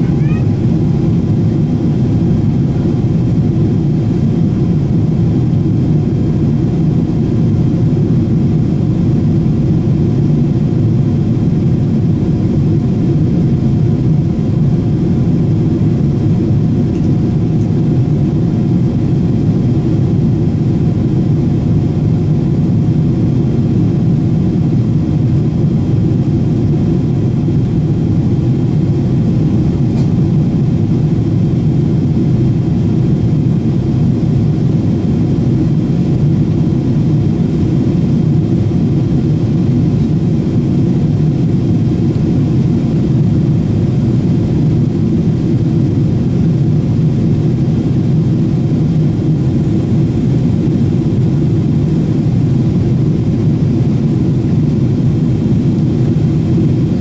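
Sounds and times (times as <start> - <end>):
airplane cabin rumble: 0.0 - 57.0.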